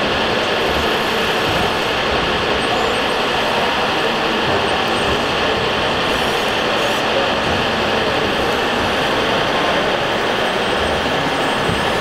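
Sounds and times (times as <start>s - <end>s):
din of busy hall: 0.0s - 12.0s
radio-controlled trucks running: 0.0s - 12.0s.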